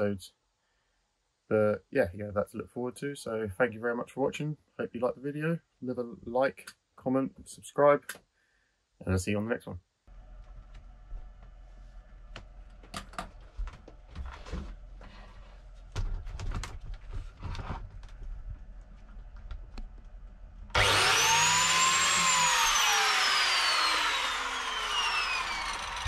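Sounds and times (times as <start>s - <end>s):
power tool motor whining: 20.7s - 26.0s.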